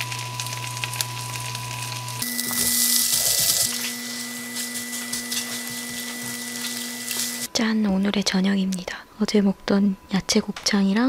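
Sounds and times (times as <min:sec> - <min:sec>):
food sizzling in frying pan: 0:00.0 - 0:07.5.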